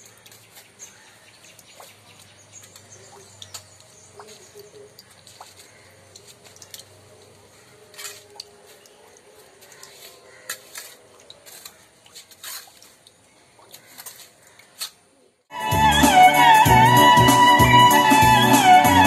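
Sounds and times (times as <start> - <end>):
hands and stick scraping soil: 5.2 - 13.0, 13.7 - 15.1
violin music: 15.5 - 19.0.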